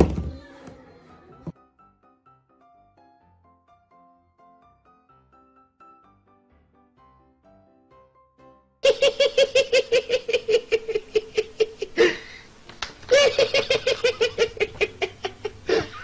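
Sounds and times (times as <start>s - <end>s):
faint music: 0.0s - 3.2s
man laughing high-pitched: 8.8s - 12.3s, 13.1s - 16.0s
sharp gasping breath: 12.0s - 12.6s.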